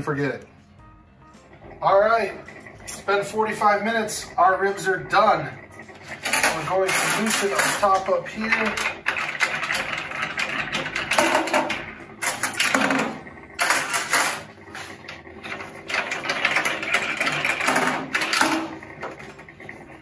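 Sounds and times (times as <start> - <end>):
clamp knobs clicking and rattling: 6.0 - 14.5, 15.1 - 19.6.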